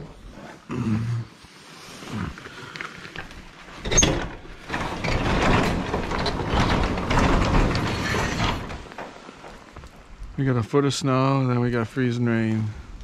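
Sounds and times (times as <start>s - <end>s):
door clattering open: 3.7s - 9.2s
freezing rain: 4.6s - 13.0s.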